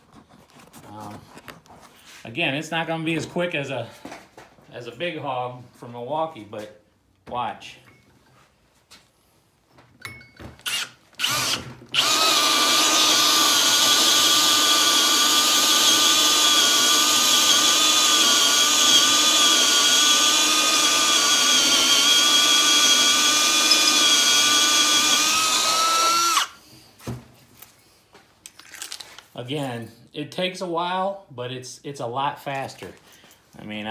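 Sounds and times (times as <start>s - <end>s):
cordless drill whining: 10.6s - 26.6s.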